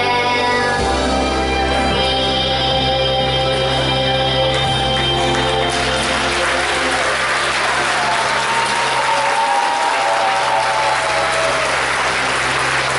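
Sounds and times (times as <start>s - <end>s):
backing music: 0.0s - 9.1s
audience applauding: 4.5s - 12.9s.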